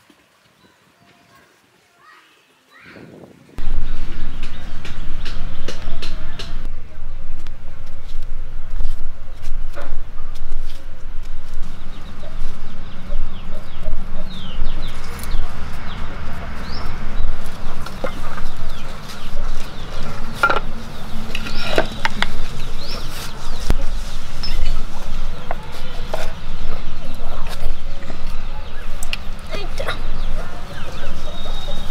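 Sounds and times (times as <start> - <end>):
steady low rumble: 3.6 - 31.9
chickens clucking: 11.8 - 31.9.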